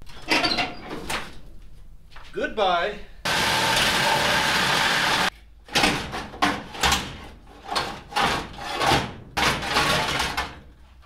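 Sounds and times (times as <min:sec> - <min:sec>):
power tool cutting steel: 0:03.3 - 0:05.3.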